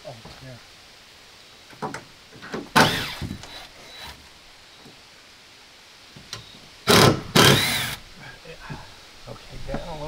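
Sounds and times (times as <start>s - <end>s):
wooden board scraping and squeaking: 1.8s - 4.2s.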